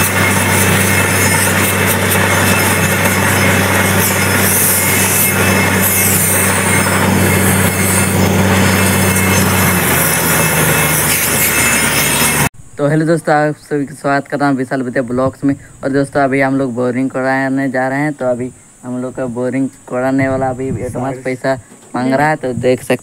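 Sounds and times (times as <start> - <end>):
harsh hissing drilling noise: 0.0 - 12.5
drilling rig engine drone: 0.0 - 12.9.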